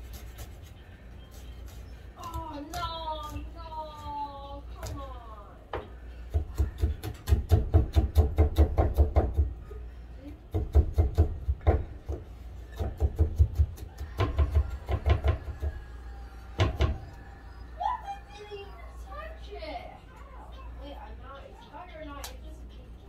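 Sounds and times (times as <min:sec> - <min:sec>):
knife chopping on wooden board: 0:06.3 - 0:09.5, 0:10.5 - 0:15.8.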